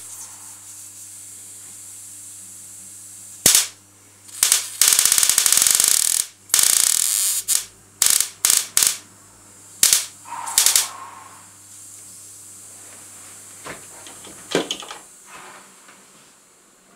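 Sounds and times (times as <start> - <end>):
electric sparks crackling: 3.4 - 9.0, 9.8 - 11.0.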